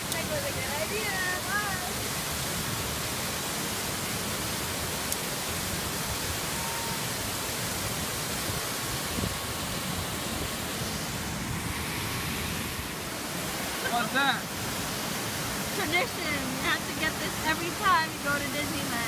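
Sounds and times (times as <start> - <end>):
waterfall rushing into a pool: 0.0 - 19.0.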